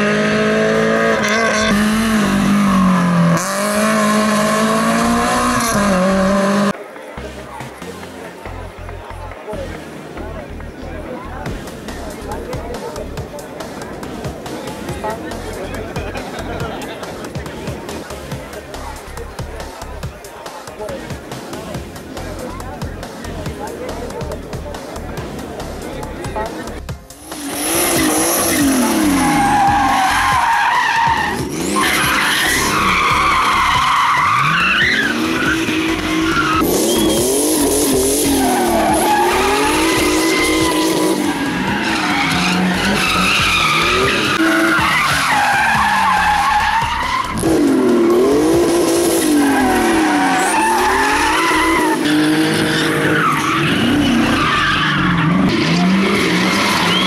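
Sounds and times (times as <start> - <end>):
car engine revving: 0.0 - 6.8, 22.0 - 57.0.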